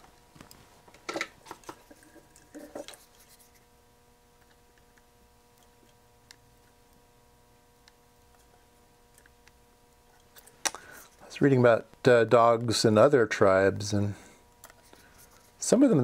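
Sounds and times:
hands handling clicks and rustles: 0.0 - 3.6
faint steady hum: 0.0 - 16.0.

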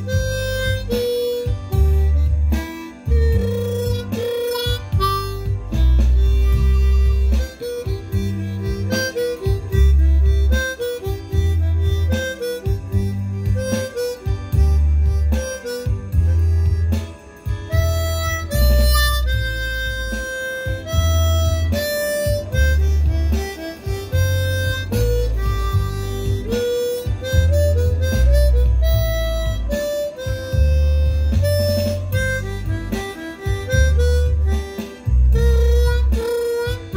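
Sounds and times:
harmonica melody: 0.0 - 36.9
low bass accompaniment: 0.0 - 36.9.

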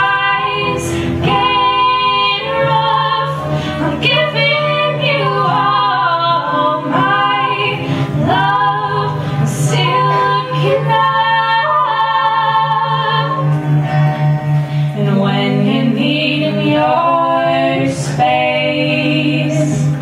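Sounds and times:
two women singing: 0.0 - 14.2, 14.8 - 20.0
strummed acoustic guitar: 0.0 - 16.0.

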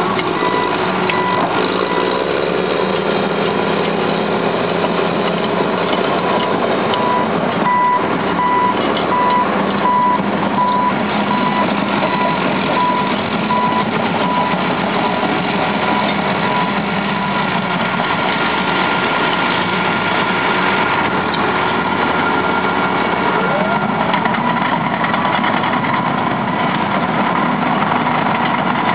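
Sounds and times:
diesel engine under load: 0.0 - 28.9
backup alarm beeping: 0.4 - 2.2, 7.0 - 15.2.

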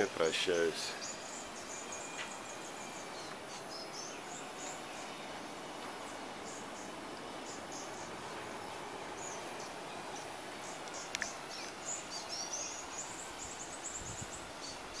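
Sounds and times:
background hiss: 0.0 - 15.0.

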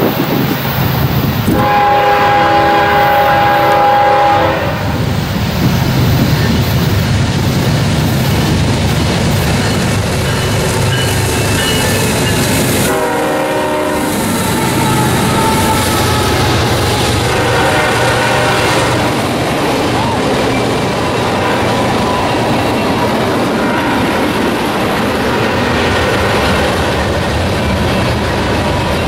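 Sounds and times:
diesel locomotive engines: 0.0 - 29.0
train wheels rumbling on rails: 0.0 - 29.0
locomotive air horn: 1.5 - 5.0, 12.8 - 19.3, 21.3 - 22.0.

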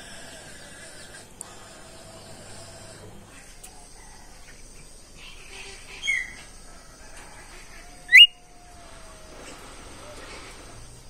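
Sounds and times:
songbird chirp: 3.4 - 11.0
bird whistle sweeping upward: 8.1 - 8.4.

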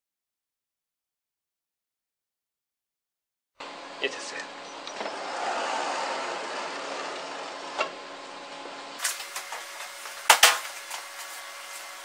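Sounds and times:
printer mechanical noise: 4.4 - 12.0.

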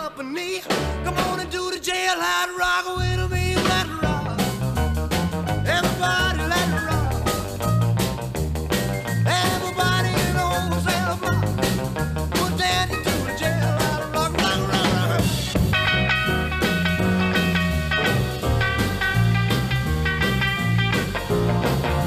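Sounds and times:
instrumental rock and roll music: 0.0 - 22.0.

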